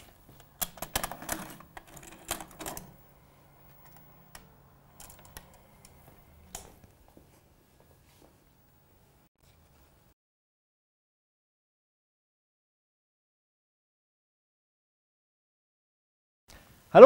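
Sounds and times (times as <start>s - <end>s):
faint low hum: 0.0s - 10.1s.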